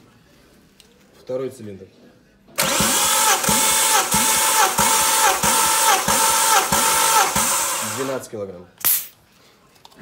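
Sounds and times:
electric drill whining: 0:02.6 - 0:08.1.

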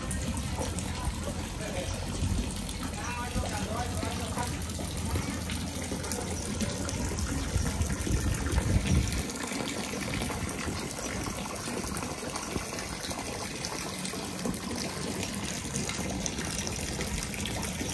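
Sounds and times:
water gushing into pond: 0:00.0 - 0:17.9.

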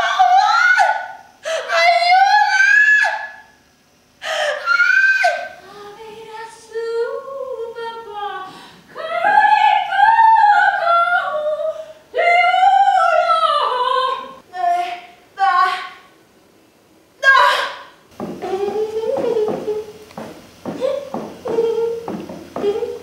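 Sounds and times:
woman singing long notes: 0:17.2 - 0:23.0.

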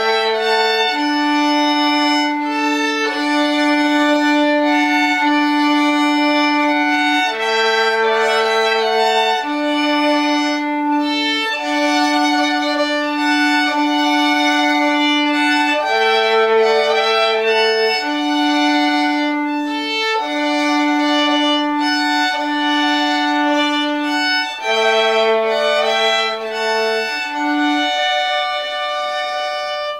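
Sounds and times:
violins playing slow tune: 0:00.0 - 0:29.9.

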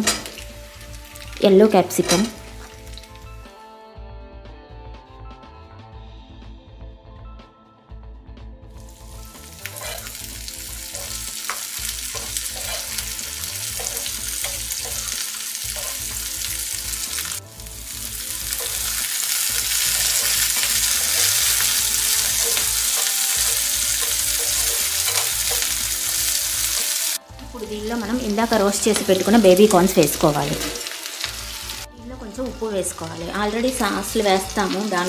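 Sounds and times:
vegetables sizzling in hot oil: 0:00.0 - 0:03.4, 0:08.8 - 0:35.0.

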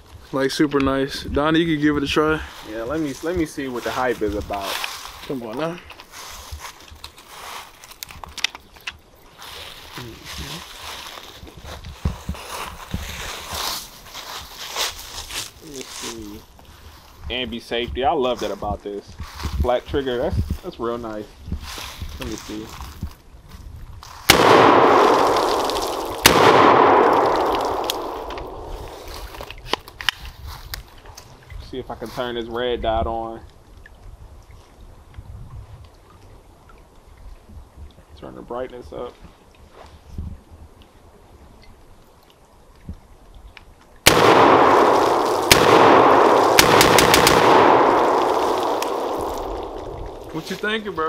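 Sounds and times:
gunshots with long echo: 0:24.3 - 0:29.5, 0:44.1 - 0:50.7.

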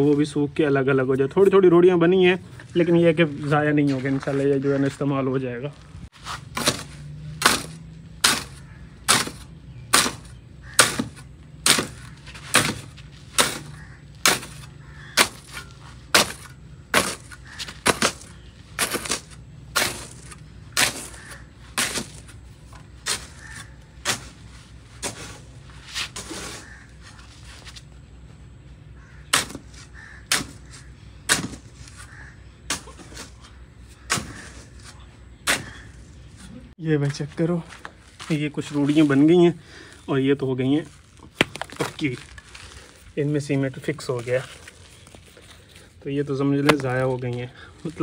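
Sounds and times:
shovel scraping concrete floor: 0:06.1 - 0:27.9, 0:32.7 - 0:36.6.

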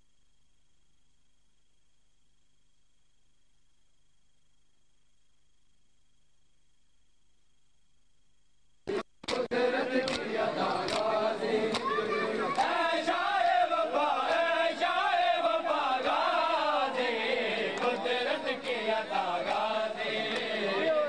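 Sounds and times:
hands slapping bare chests: 0:08.9 - 0:12.8, 0:14.2 - 0:14.5, 0:17.7 - 0:18.0, 0:20.3 - 0:20.6
men chanting in unison: 0:08.9 - 0:21.0.

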